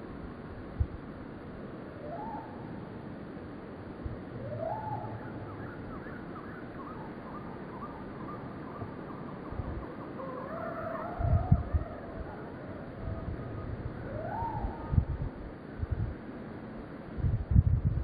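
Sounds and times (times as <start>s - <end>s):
outdoor background noise: 0.0s - 18.0s
soft hooting animal calls: 2.0s - 2.7s, 4.4s - 15.1s.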